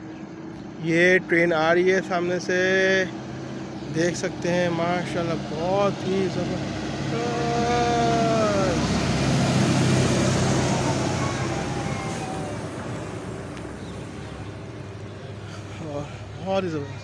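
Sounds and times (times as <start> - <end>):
ride train passing: 0.4 - 17.0
held tone dropping in pitch: 10.2 - 13.6.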